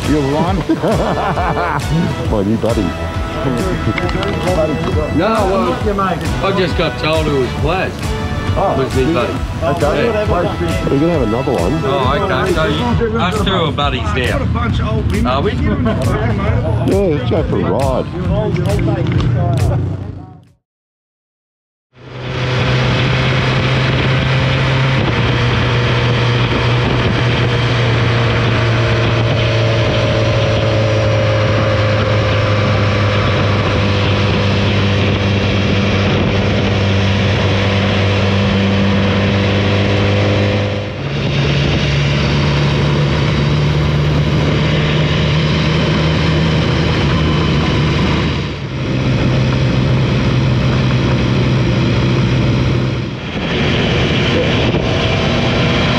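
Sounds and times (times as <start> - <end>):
motorcycle engine running: 0.0 - 20.6, 21.9 - 55.9
wind rush: 22.0 - 55.9.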